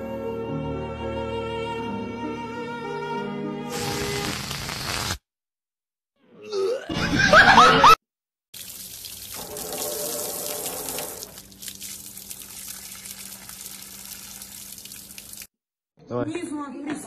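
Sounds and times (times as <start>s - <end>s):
water spraying on glass: 3.7s - 5.2s, 8.6s - 15.5s.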